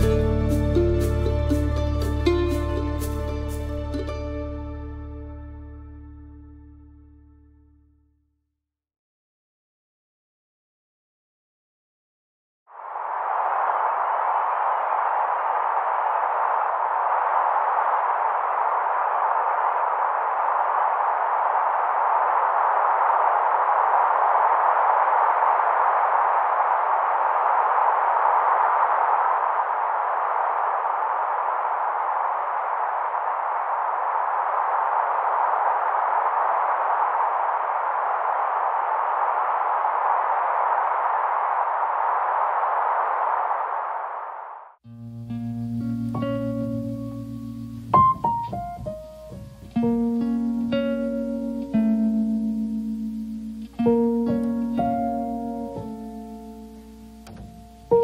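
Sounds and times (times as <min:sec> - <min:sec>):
steady hiss: 0:45.0 - 0:58.0.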